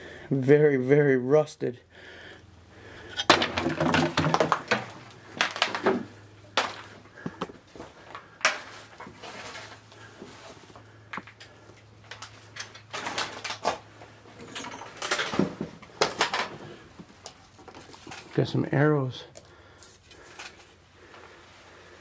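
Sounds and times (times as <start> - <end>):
metal parts clattering and scraping: 3.1 - 7.1, 8.1 - 18.5, 20.2 - 20.7.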